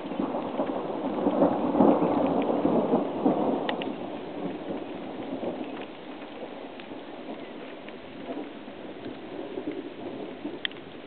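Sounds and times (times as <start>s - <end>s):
raindrop ticks: 0.0s - 11.0s
steady rain: 0.0s - 11.0s
thunder rumbling: 0.0s - 11.0s.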